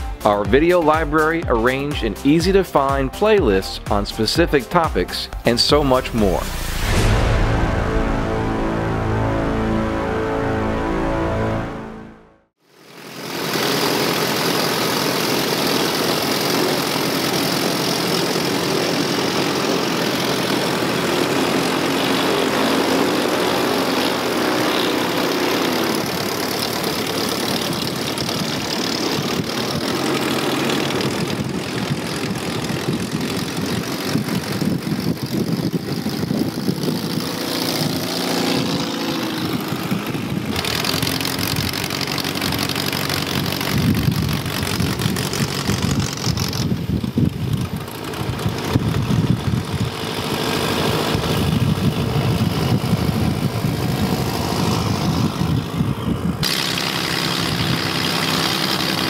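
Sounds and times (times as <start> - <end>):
light aircraft engine droning: 38.6 - 59.0.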